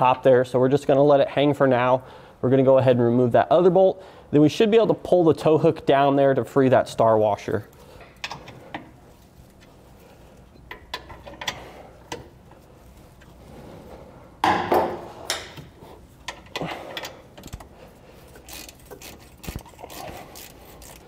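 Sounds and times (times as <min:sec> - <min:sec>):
hand ratchet clicking: 0:16.3 - 0:17.7, 0:18.3 - 0:21.0.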